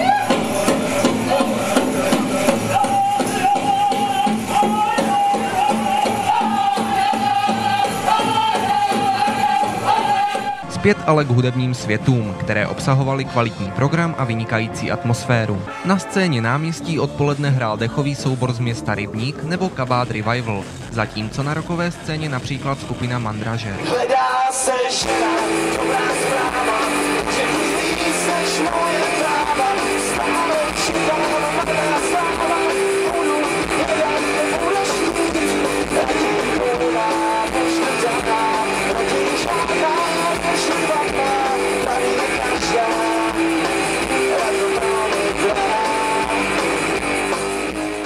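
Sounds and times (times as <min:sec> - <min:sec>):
drums: 0:00.0 - 0:14.2, 0:15.7 - 0:48.0
man singing lead vocal: 0:00.0 - 0:47.2
electric guitars strumming: 0:25.0 - 0:48.0.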